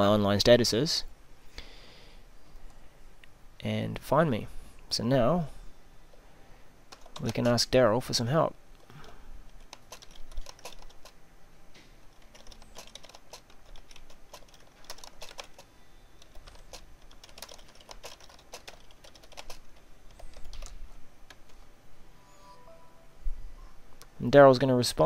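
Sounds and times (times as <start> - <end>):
computer keyboard typing: 6.9 - 7.6, 9.5 - 11.2, 12.0 - 21.6.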